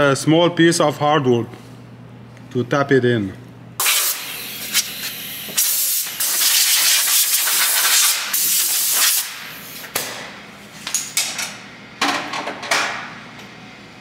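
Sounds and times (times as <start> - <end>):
spray nozzle hissing: 3.8 - 9.2.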